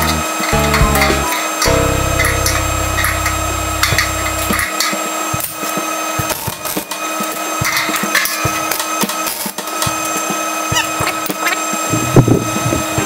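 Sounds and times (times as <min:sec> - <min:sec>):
low steady hum: 0:00.0 - 0:04.7.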